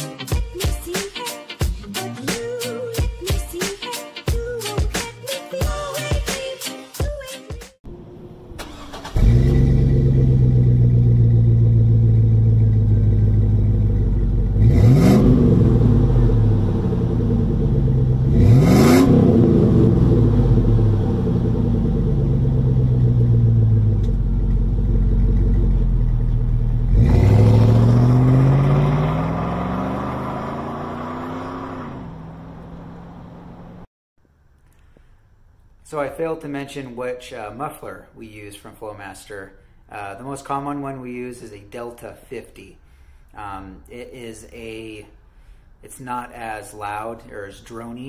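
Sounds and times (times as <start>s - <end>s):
truck accelerating away: 7.9s - 33.9s
engine revving sharply: 8.5s - 13.6s, 14.4s - 24.1s, 26.5s - 33.8s
truck engine idling: 20.1s - 27.0s.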